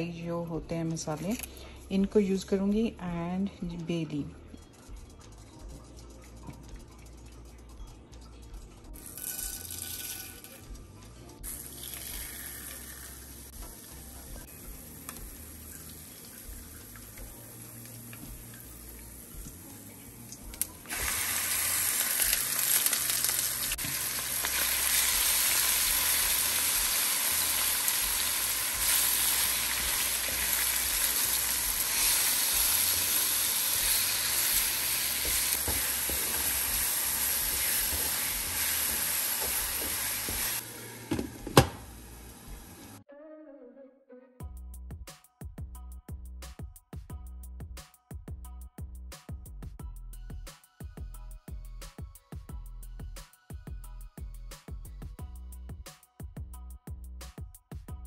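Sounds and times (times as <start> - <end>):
oil sizzling in a wok: 9.0 - 10.6, 11.4 - 43.0
onions frying loudly: 11.4 - 43.0.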